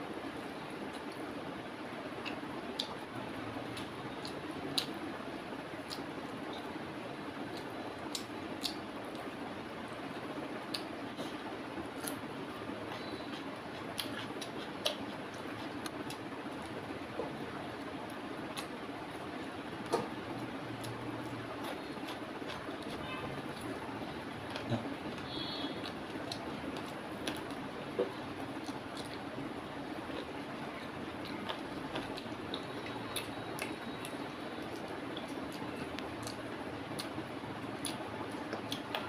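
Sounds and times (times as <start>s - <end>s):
chewing and sucking: 12.9s - 16.2s.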